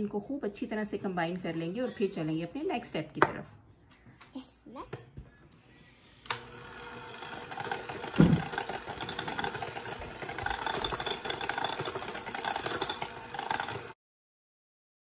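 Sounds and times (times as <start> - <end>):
electric hand mixer running: 6.2 - 14.0.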